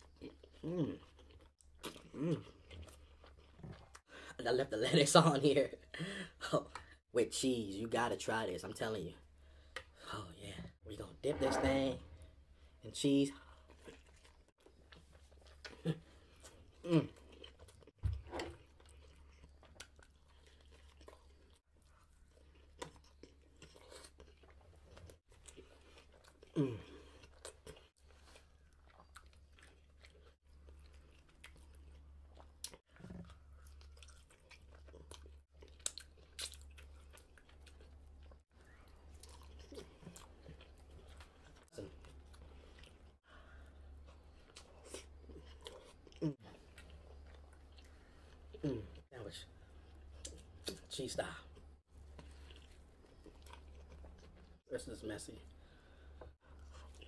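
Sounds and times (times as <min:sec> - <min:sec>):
chewing and biting food: 0:00.0 - 0:04.1, 0:13.4 - 0:54.7
person humming: 0:00.6 - 0:01.0.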